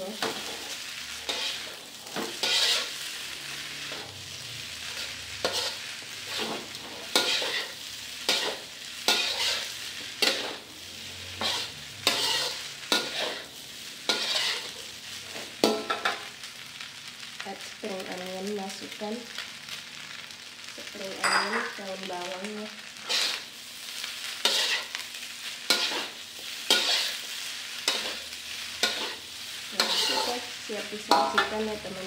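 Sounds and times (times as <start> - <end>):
rice sizzling: 0.0 - 32.0
metal spatula scraping a wok: 0.1 - 4.1, 4.8 - 10.6, 11.2 - 16.3, 23.0 - 32.0.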